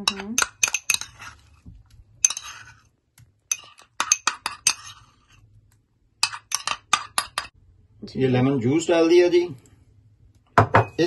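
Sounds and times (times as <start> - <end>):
metal spoon scraping bowl: 0.0 - 1.6, 2.2 - 2.9, 3.5 - 5.4, 6.2 - 7.5.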